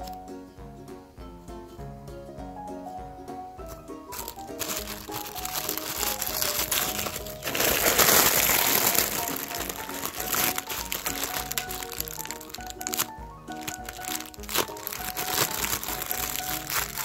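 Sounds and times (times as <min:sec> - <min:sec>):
background music: 0:00.0 - 0:17.0
plastic bags crinkling: 0:04.1 - 0:17.0.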